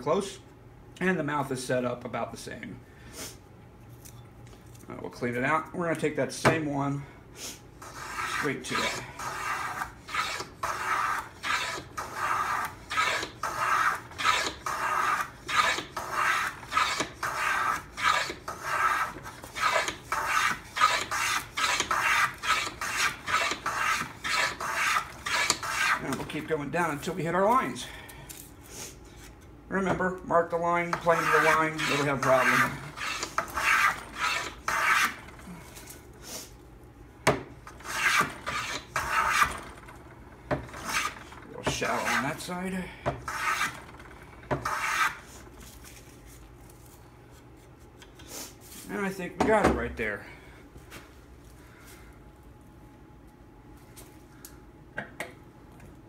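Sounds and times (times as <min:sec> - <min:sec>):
hand plane slicing wood shavings: 0:07.8 - 0:26.2, 0:31.0 - 0:35.2, 0:37.8 - 0:39.5, 0:40.8 - 0:42.4, 0:43.3 - 0:43.8, 0:44.6 - 0:45.2.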